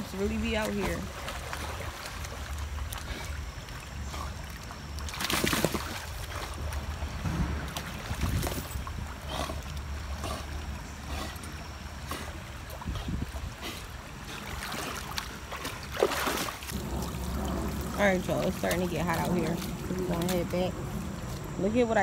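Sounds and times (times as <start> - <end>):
dog swimming and splashing: 0.0 - 21.5
wind rumble on microphone: 5.7 - 10.1, 12.4 - 14.4, 16.6 - 22.0.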